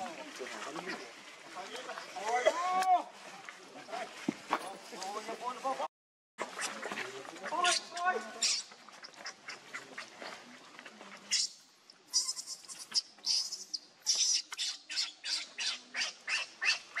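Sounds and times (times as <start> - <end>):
baby monkey squealing: 11.3 - 16.8.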